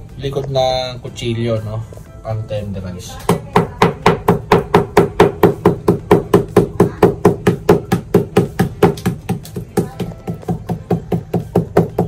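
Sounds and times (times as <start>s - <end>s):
knife pounding steak on wooden board: 3.3s - 12.0s.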